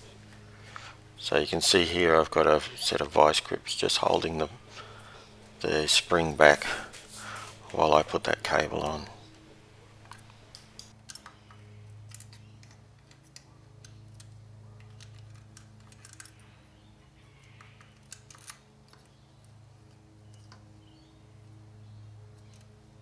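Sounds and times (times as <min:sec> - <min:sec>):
steady low hum: 0:00.0 - 0:23.0
small metallic clicks and taps: 0:10.0 - 0:16.4.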